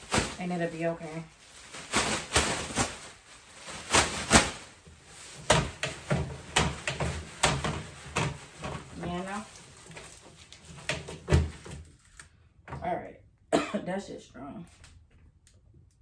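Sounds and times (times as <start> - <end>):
plastic bag crinkling: 0.0 - 12.3.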